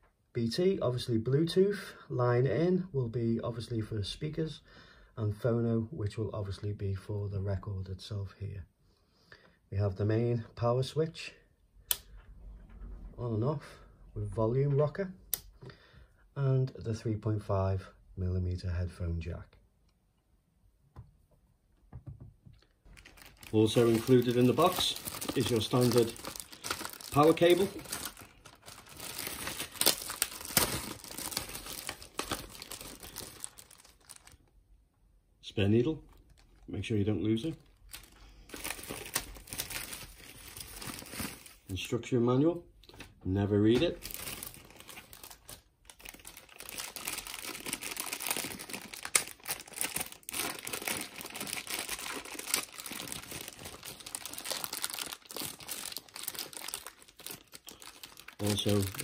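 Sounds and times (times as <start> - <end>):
plastic bags crinkling: 22.6 - 34.5, 36.1 - 36.7, 37.4 - 41.7, 43.8 - 59.0.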